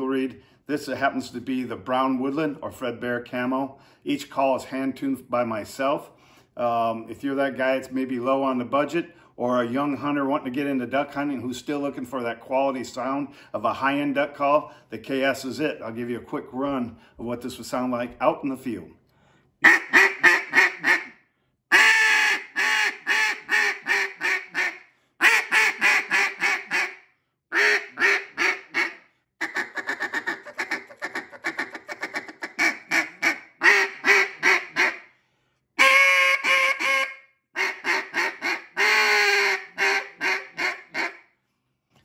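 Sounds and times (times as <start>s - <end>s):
duck call rapid chattering: 19.6s - 21.1s, 21.7s - 35.0s, 35.8s - 41.2s
duck call quacking: 19.6s - 35.1s, 35.8s - 41.2s.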